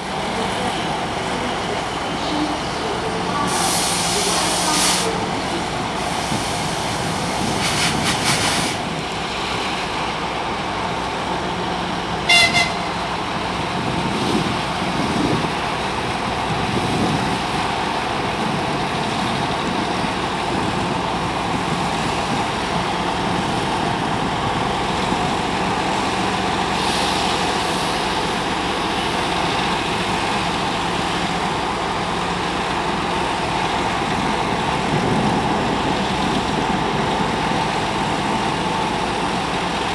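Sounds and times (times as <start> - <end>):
diesel locomotive engines running: 0.0 - 39.9
short high horn toot: 12.3 - 12.9.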